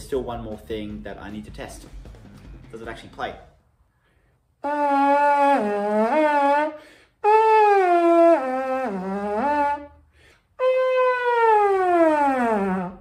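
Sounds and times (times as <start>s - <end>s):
bugle notes sliding in pitch: 10.6s - 13.0s.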